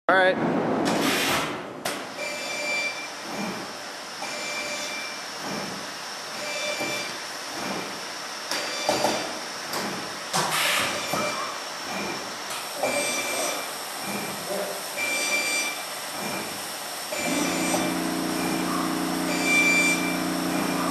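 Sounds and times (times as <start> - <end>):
welding machine running: 12.2 - 20.9
short high beep: 19.3 - 20.2.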